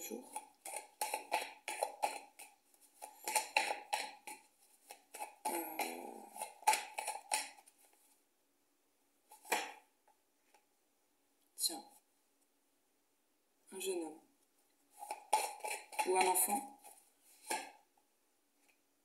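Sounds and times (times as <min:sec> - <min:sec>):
cards shuffling and clicking: 0:00.3 - 0:08.0, 0:15.0 - 0:17.8.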